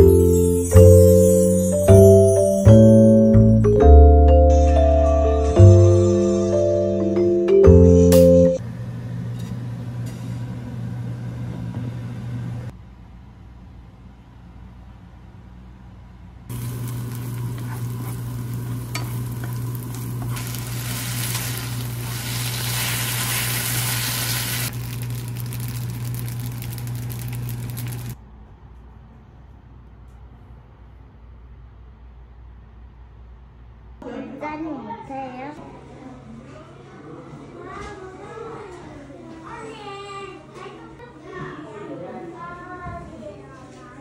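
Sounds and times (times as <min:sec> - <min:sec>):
steady low hum: 0:08.6 - 0:22.9
garlic sizzling in oil: 0:16.5 - 0:28.2.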